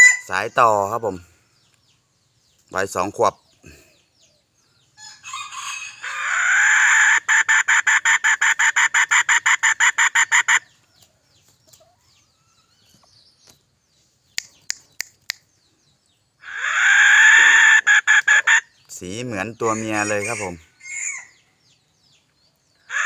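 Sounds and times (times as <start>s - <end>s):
rooster call pulsing: 5.0s - 10.6s, 16.4s - 18.6s, 19.6s - 21.4s
sharp clicks: 14.4s - 15.5s.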